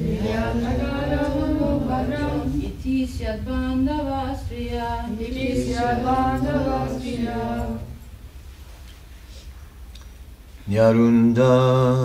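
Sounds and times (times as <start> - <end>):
group chanting in unison: 0.0 - 8.0.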